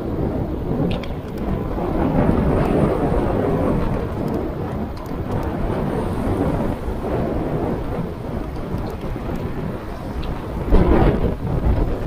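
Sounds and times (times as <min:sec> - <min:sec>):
wind buffeting microphone: 0:00.0 - 0:12.0
tyres hissing on wet road: 0:02.3 - 0:12.0.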